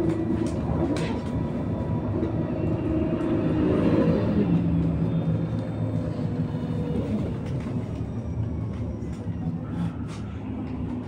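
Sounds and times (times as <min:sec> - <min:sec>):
bus tyres rumbling: 0:00.0 - 0:11.0.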